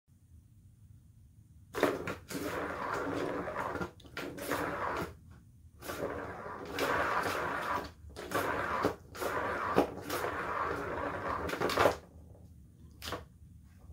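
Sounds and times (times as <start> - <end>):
ball rolling around plastic track: 1.7 - 5.2, 5.8 - 12.4.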